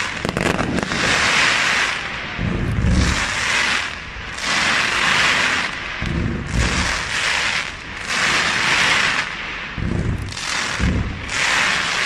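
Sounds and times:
deep firework booms: 0.0 - 12.0
fireworks crackling: 0.0 - 12.0.

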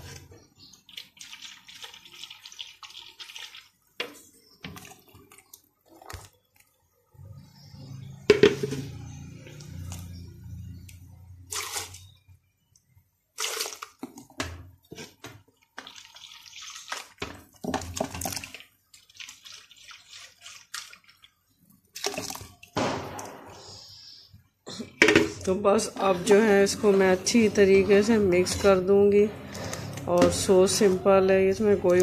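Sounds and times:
metal spoon stirring and sloshing: 0.0 - 6.7, 7.4 - 23.3, 25.0 - 32.0
liquid pouring into a steel pot: 0.5 - 6.7, 15.7 - 23.4.

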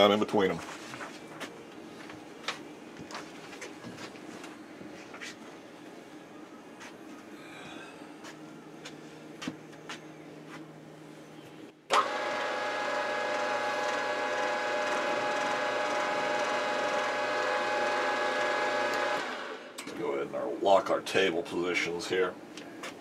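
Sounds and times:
spindle motor whine: 11.0 - 19.9.

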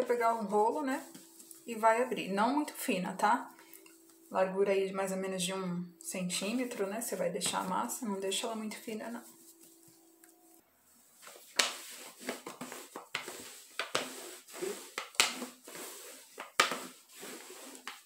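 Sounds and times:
rolling pin on dough: 0.0 - 2.7, 11.2 - 18.0.

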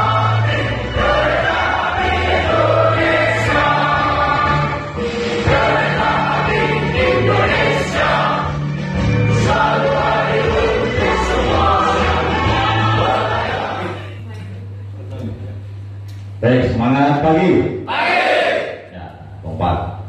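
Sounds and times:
group singing in unison: 0.0 - 14.2.

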